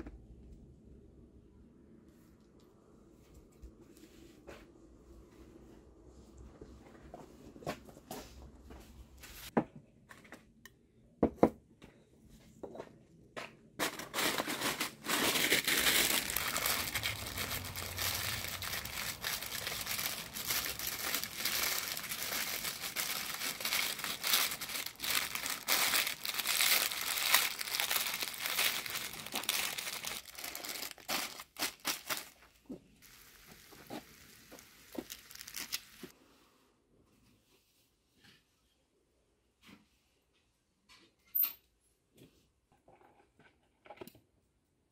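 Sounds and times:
baking paper crinkling: 13.8 - 36.1.

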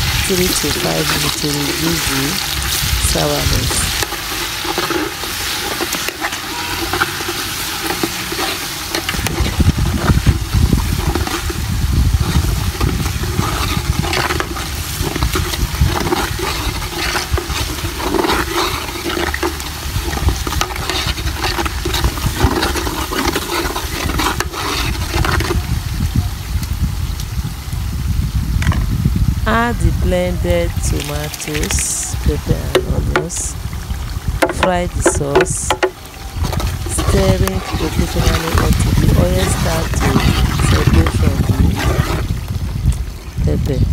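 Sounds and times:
onions sizzling in oil: 0.0 - 29.4
low rumbling noise: 0.0 - 43.9
metal spoon scraping pot: 0.2 - 11.6, 12.2 - 25.6, 34.4 - 42.4.

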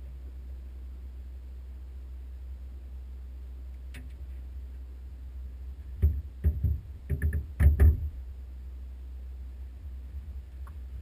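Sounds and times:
steady low rumble: 0.0 - 11.0
knocks and thumps: 5.9 - 8.2.

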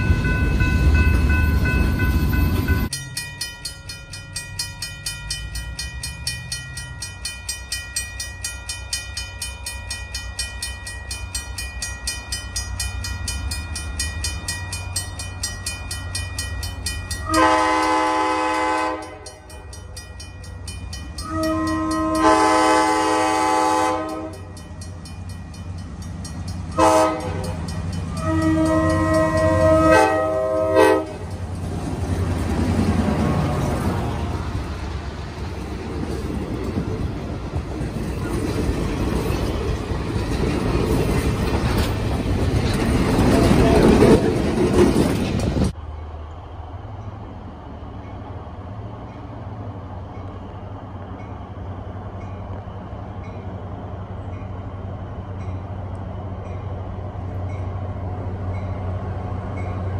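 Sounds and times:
locomotive engine rumble: 0.0 - 9.7, 10.6 - 59.9
crossing bell dinging: 0.0 - 34.8, 54.2 - 59.9
locomotive air horn blowing: 17.2 - 19.4, 21.2 - 24.5, 26.8 - 31.3.

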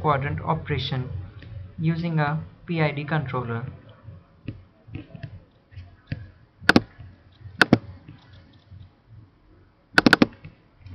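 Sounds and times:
faint taps and light thumps: 4.0 - 8.9
computer mouse clicking: 6.7 - 8.9, 10.0 - 10.6.

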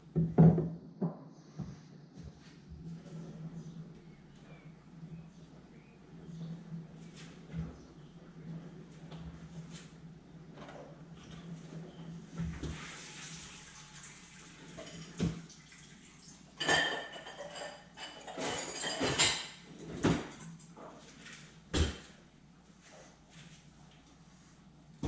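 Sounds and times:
metal utensils clinking: 16.6 - 19.6.

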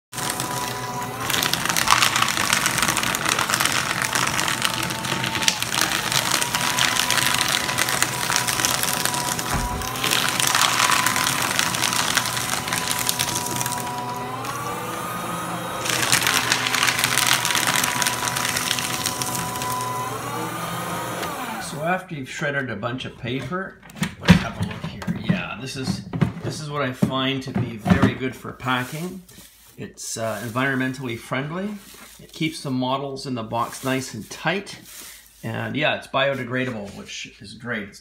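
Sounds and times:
shredder motor hum: 0.0 - 21.9
paper shredder crunching paper: 0.0 - 22.0, 27.7 - 37.0.

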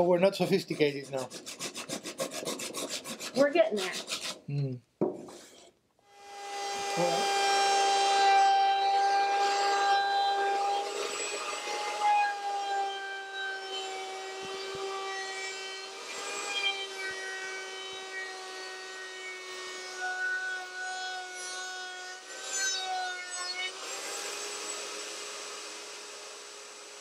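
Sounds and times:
router bit rasping wood: 0.0 - 4.7, 5.3 - 27.0
router high whine: 6.1 - 27.0.

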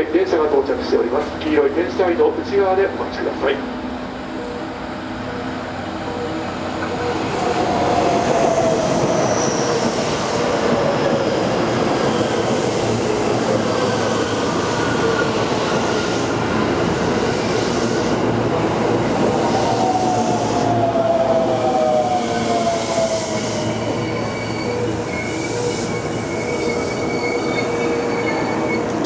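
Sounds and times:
train wheel and running noise: 0.0 - 29.0
train falling whine: 3.5 - 29.0
train brakes squealing: 6.3 - 10.6, 19.4 - 29.0.

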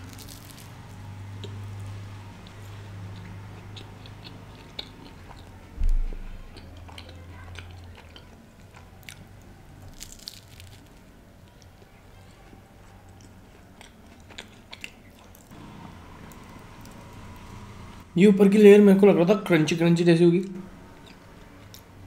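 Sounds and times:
man chewing pastry: 0.0 - 17.6, 20.8 - 22.0
dull low thump: 5.8 - 6.3.

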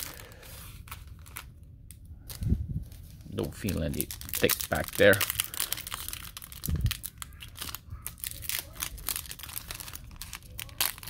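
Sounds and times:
foil wrapper crinkling: 0.0 - 11.0
wrapper tearing: 2.2 - 11.0.

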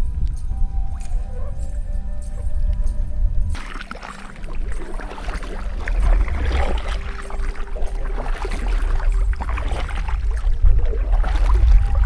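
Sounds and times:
steady low rumble: 0.0 - 12.0
kayak paddle splashing in water: 3.5 - 12.0.

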